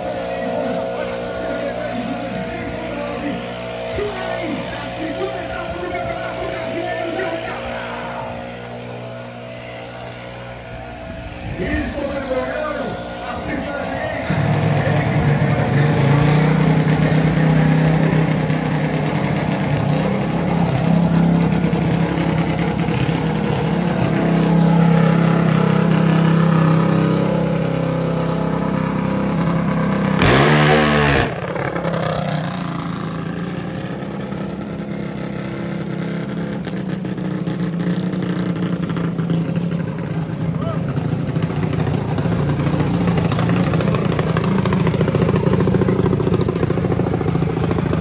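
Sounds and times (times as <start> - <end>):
dragster engine droning: 0.0 - 48.0
engine revving burst: 0.0 - 48.0.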